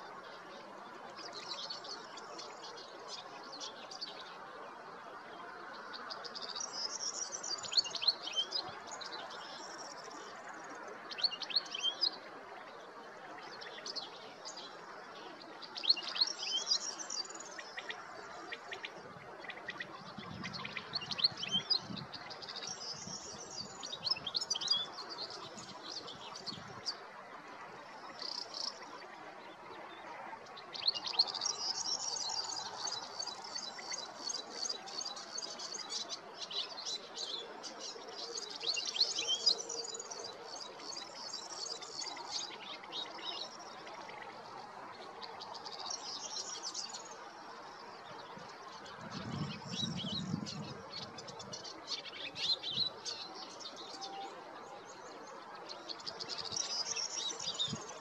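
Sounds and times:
goldfinch twittering song: 13.4s - 27.1s, 27.8s - 58.0s.

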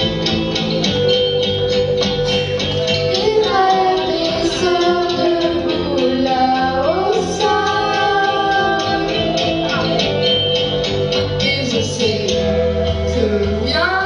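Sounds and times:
rhythmic instrumental accompaniment: 0.0s - 14.0s
children's choir singing: 3.1s - 10.2s.

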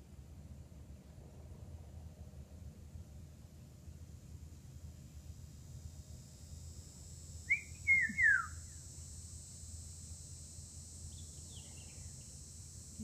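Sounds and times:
songbird singing short phrase: 7.5s - 8.6s.

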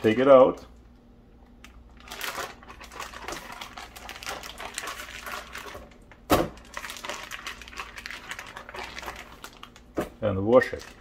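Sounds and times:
plastic zipper bag crinkling: 1.6s - 11.0s.

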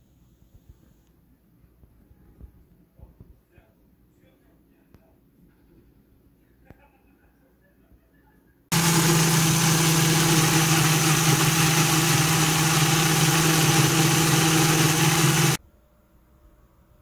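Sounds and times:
blender motor grinding: 8.7s - 15.6s.

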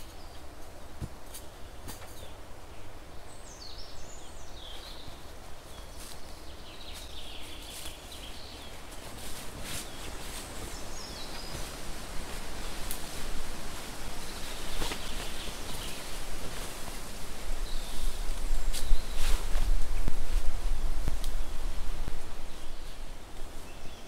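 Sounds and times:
songbirds chirping: 0.0s - 24.0s
footsteps on dry leaves: 5.8s - 23.1s.

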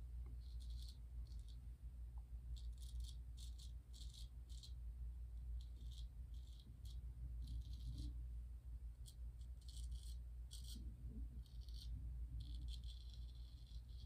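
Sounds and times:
razor scraping stubble: 0.4s - 1.6s, 2.6s - 4.8s, 9.0s - 14.0s.

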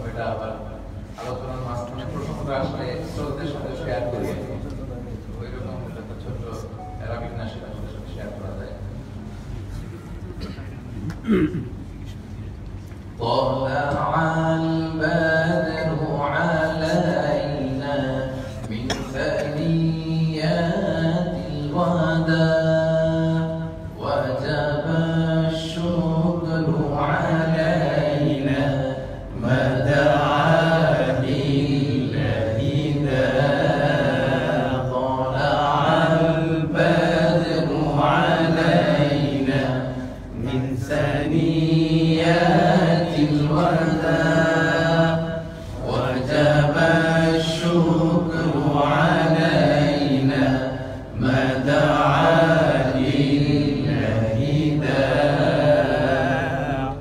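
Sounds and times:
man singing devotional song: 13.2s - 28.9s
breath: 18.4s - 18.6s, 45.4s - 45.8s.

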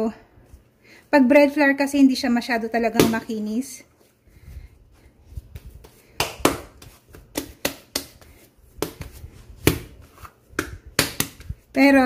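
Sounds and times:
dough slapped and patted: 2.9s - 3.5s, 5.5s - 12.0s.

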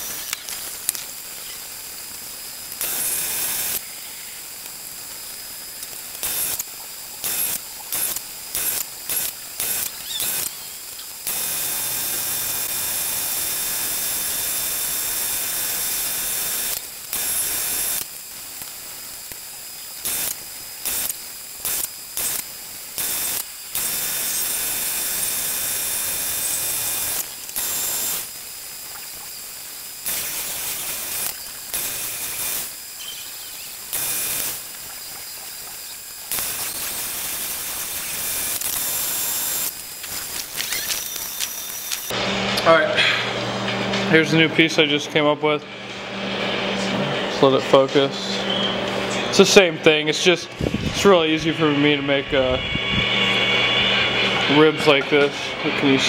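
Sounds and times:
metal lathe whining: 7.2s - 18.0s, 23.0s - 28.3s, 45.6s - 56.0s.

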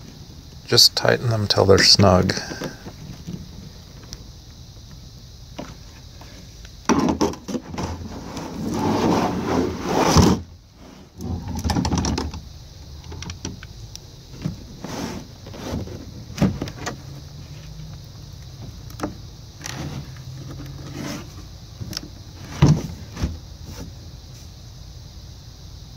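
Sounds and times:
plastic ice chest knocks: 6.9s - 8.0s.

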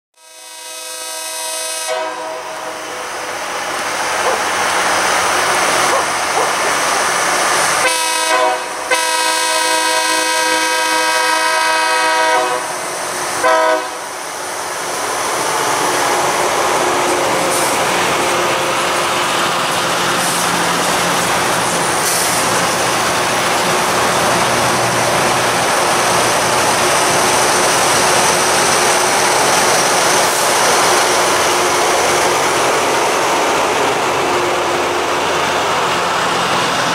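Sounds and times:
train horn blasts: 0.2s - 3.0s, 7.8s - 12.8s, 13.4s - 14.1s
grinding stones rushing on rail: 3.3s - 7.8s.

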